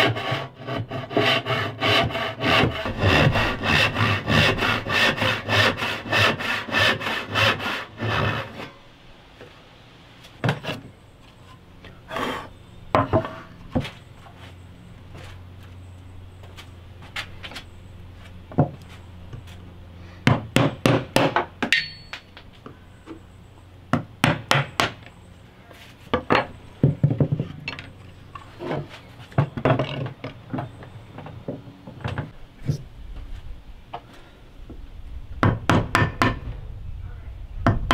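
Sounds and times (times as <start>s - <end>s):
mallet striking chisel: 20.6s - 22.3s.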